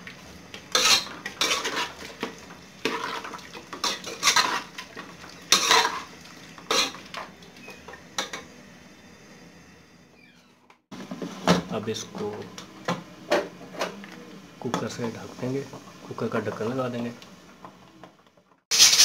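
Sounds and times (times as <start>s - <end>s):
metal spoon scraping a pot: 0.7s - 2.0s, 2.8s - 4.7s, 5.5s - 6.0s, 6.7s - 7.0s.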